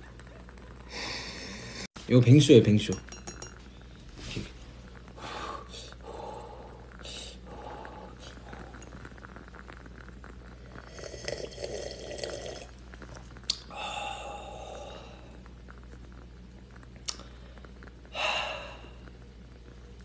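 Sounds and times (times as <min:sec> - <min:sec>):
person slurping a sip: 0:10.8 - 0:12.7.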